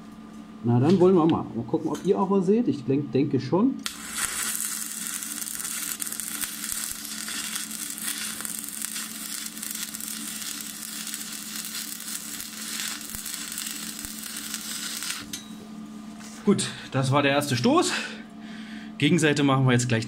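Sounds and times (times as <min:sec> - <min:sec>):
welding arc crackling: 0:03.8 - 0:15.4.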